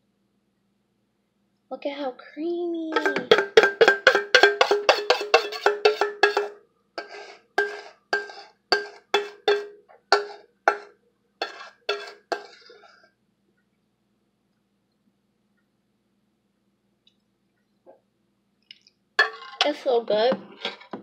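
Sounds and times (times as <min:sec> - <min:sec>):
spoon knocking metal bowl: 0:02.9 - 0:12.6, 0:19.2 - 0:19.7
spoon scraping bowl: 0:02.9 - 0:13.0, 0:19.2 - 0:19.8.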